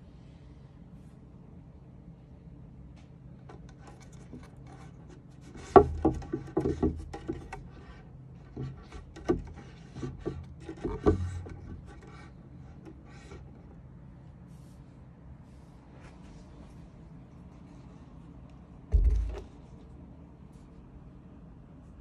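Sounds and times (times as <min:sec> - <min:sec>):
rubbing and scraping on drum: 0:03.7 - 0:13.6, 0:18.9 - 0:19.5
knocks on hand drum: 0:18.9 - 0:19.5
low drumhead boom: 0:18.9 - 0:19.6.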